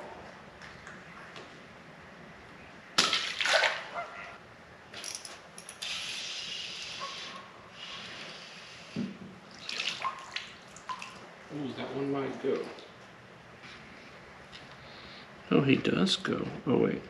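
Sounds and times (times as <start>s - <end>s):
water splashing and sloshing: 3.0s - 4.3s, 9.4s - 13.1s.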